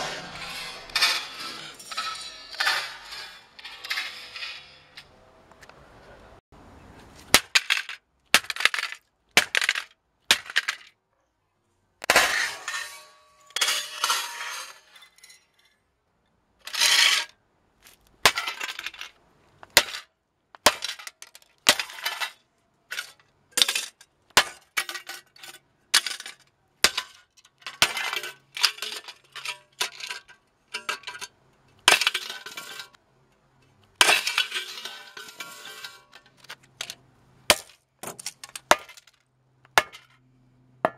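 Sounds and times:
sledgehammer smashing plastic and metal: 18.2 - 19.1, 19.7 - 31.2, 31.8 - 33.0, 34.0 - 39.2.

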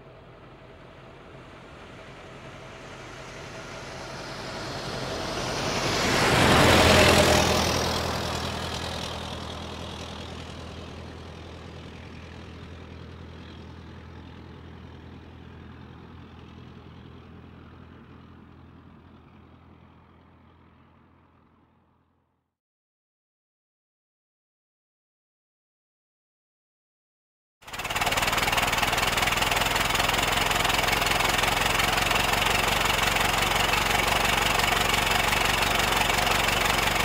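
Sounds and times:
car driving past: 1.3 - 11.1.

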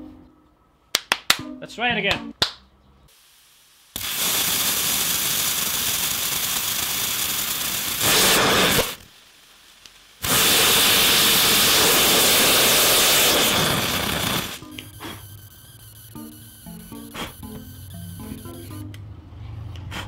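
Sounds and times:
rocket engine rushing hiss: 3.1 - 14.6.

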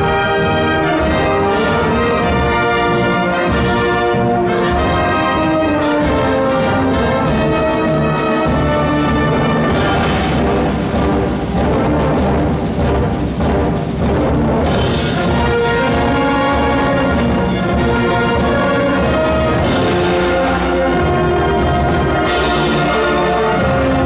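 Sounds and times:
brass chords: 0.0 - 24.0
timpani: 0.0 - 24.0
wind band playing a march: 0.0 - 24.0.

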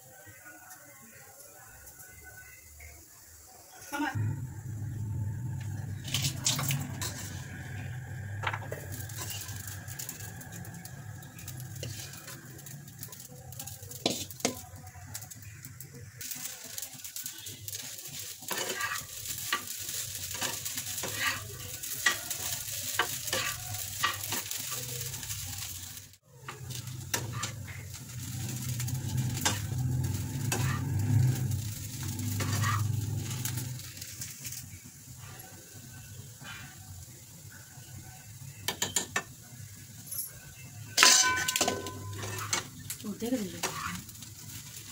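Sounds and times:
oil sizzling: 0.0 - 44.9
metal spatula scraping pan: 5.8 - 14.6, 17.2 - 25.7, 26.5 - 33.9, 41.0 - 44.8
spatula tapping pan: 13.9 - 15.3.

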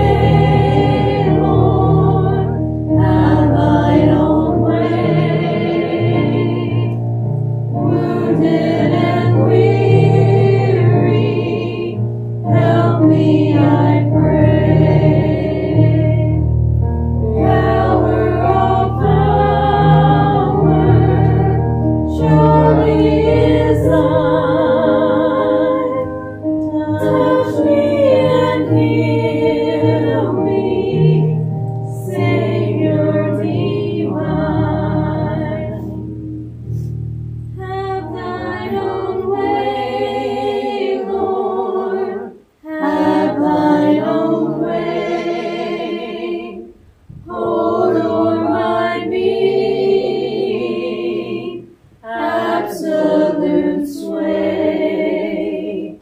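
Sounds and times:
congregation singing a hymn: 0.0 - 36.9, 37.5 - 56.0
low steady accompaniment note: 0.0 - 41.4.

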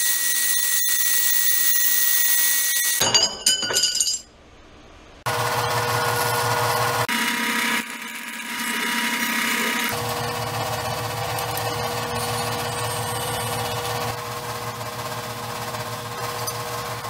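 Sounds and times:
drill bit grinding through steel: 0.0 - 3.0, 6.9 - 14.2
drill press motor hum: 5.3 - 17.0.

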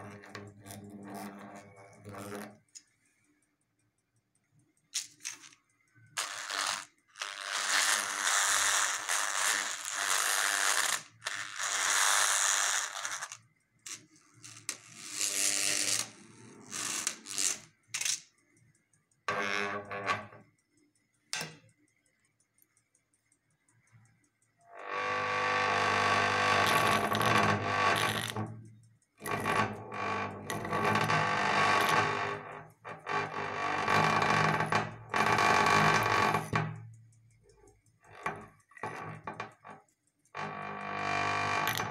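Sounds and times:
steel strip buzzing on electromagnet: 0.0 - 2.6, 6.2 - 18.3, 24.6 - 36.9, 38.0 - 41.9.

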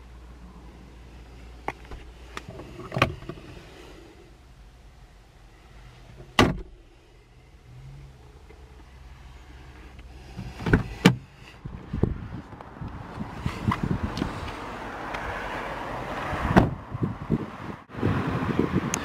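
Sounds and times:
car door latch clicking: 6.3 - 6.8
car door shutting with thud: 6.3 - 6.8, 16.5 - 16.8.

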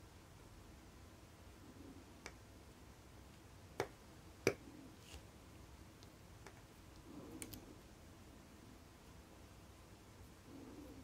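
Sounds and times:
soft rustle: 4.7 - 8.0.

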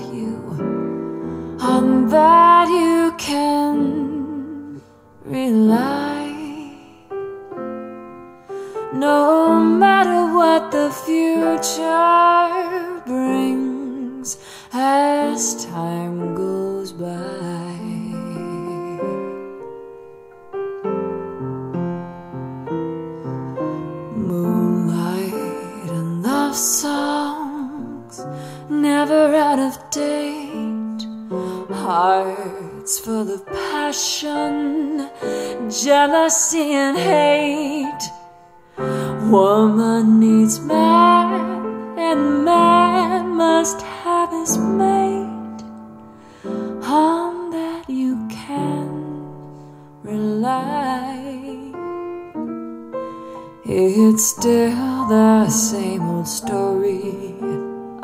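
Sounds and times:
woman singing with vibrato: 0.0 - 1.0, 1.6 - 7.0, 8.9 - 19.4, 24.1 - 38.2, 38.8 - 45.6, 46.8 - 49.4, 50.0 - 51.8, 53.6 - 57.6
piano through small speakers: 0.0 - 58.0.

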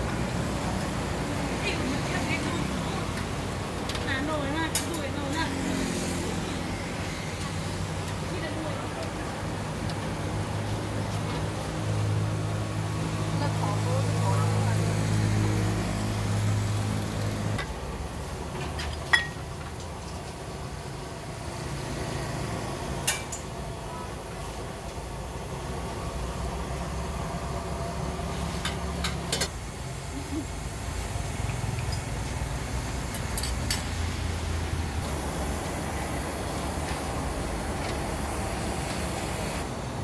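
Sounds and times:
engine hum: 0.0 - 40.0
engines and road traffic rumble: 0.0 - 40.0
metal utensils and bowls clinking: 18.6 - 20.3, 33.1 - 33.9.

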